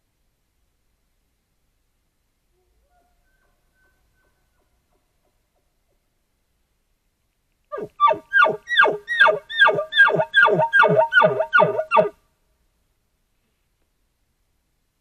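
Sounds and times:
animal yelping calls: 0:07.7 - 0:12.2.

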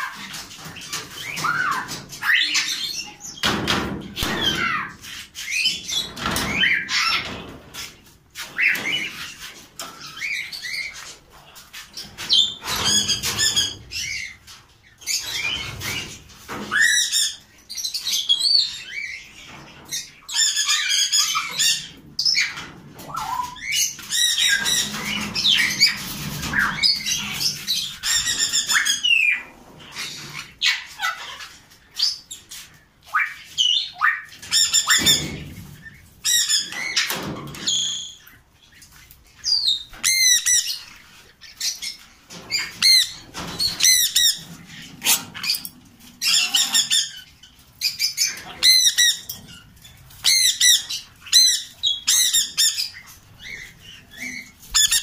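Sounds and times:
parrots squawking: 0:01.2 - 0:03.3, 0:20.2 - 0:32.2, 0:39.5 - 0:49.6, 0:50.2 - 0:55.0.

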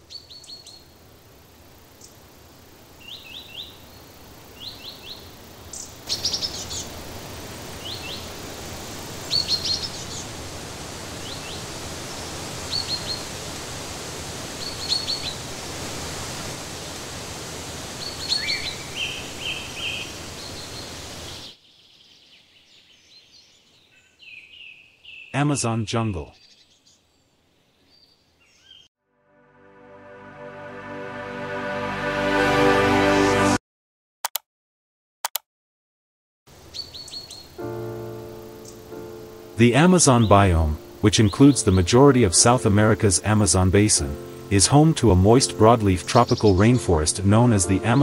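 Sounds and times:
birds chirping: 0:03.0 - 0:10.4, 0:11.1 - 0:13.4, 0:14.6 - 0:15.5, 0:17.9 - 0:28.9, 0:36.6 - 0:48.0
waterfall rushing: 0:09.0 - 0:21.3, 0:39.6 - 0:48.0.

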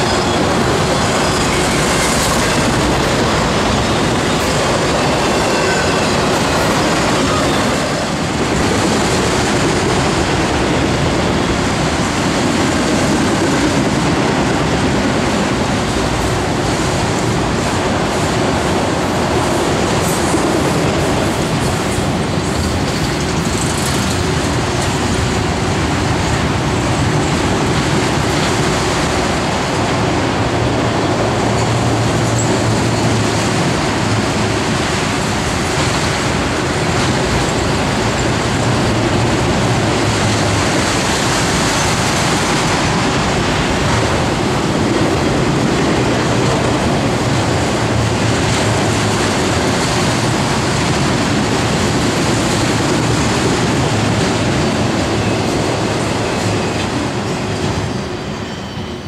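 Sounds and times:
freight train rolling past: 0:00.0 - 0:59.0
steel wheels on rails: 0:00.0 - 0:59.0.

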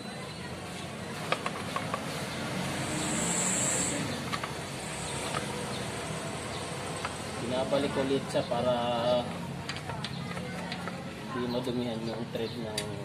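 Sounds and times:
vehicle passing: 0:01.8 - 0:09.6.

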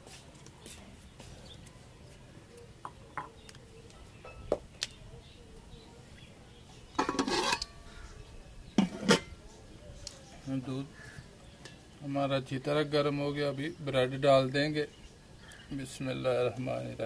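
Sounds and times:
metal lid clattering on pot: 0:07.0 - 0:07.8, 0:08.8 - 0:09.4.

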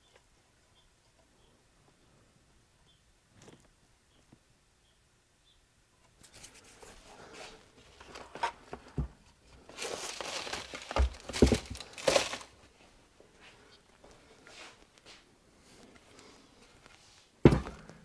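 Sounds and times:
crinkling and rustling of parts: 0:06.0 - 0:18.0.

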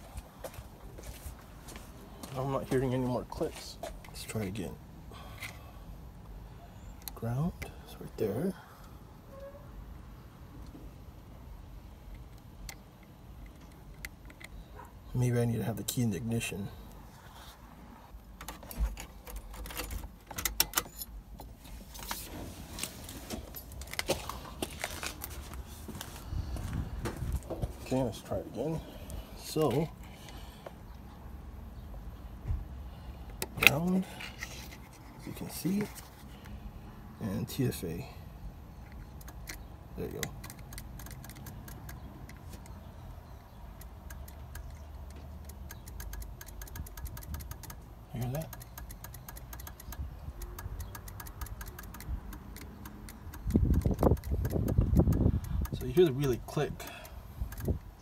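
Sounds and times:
car keys jangling: 0:18.4 - 0:21.2
key clicking into ignition: 0:38.9 - 0:42.8, 0:43.7 - 0:57.9.

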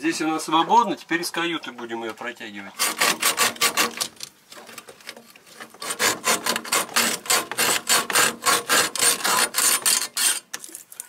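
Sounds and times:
rasping strokes: 0:02.8 - 0:04.1, 0:05.5 - 0:10.5.

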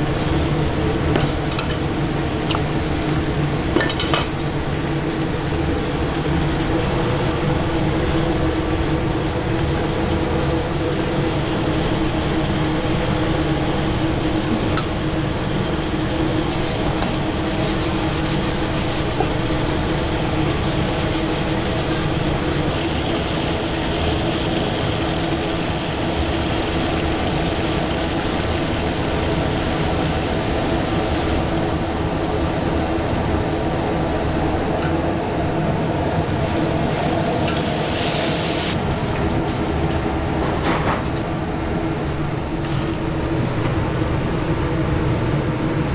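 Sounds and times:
fish deep-frying in oil: 0:00.0 - 0:40.4
hiss of food lifted from oil: 0:37.2 - 0:38.8.

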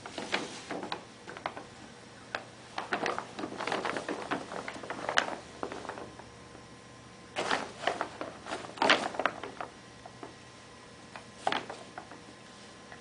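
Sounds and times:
paper bag crinkling and rustling: 0:00.0 - 0:06.2, 0:07.4 - 0:10.3, 0:11.2 - 0:12.2.

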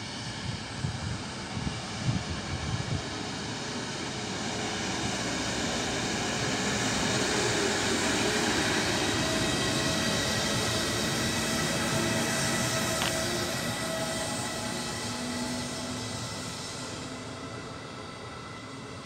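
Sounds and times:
locomotive high whine: 0:00.0 - 0:19.0
wheels rushing on rail: 0:00.0 - 0:19.0
wind buffeting microphone: 0:00.3 - 0:03.5.

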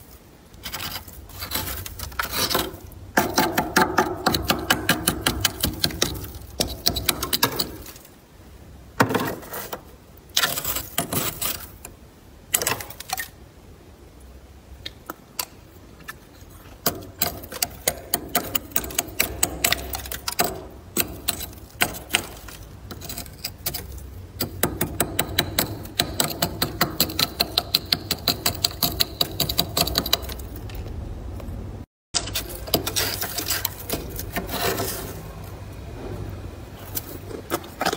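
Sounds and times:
freezer frost being scraped: 0:00.6 - 0:02.9, 0:09.2 - 0:11.8, 0:21.2 - 0:24.0, 0:32.2 - 0:35.4.

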